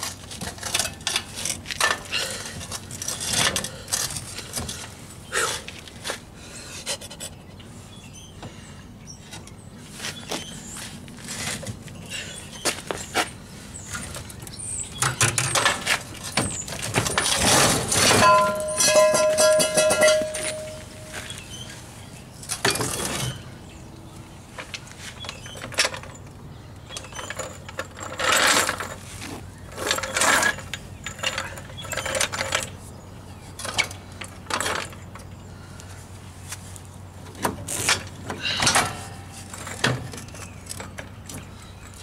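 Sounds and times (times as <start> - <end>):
metal clinks: 18.1 - 21.3.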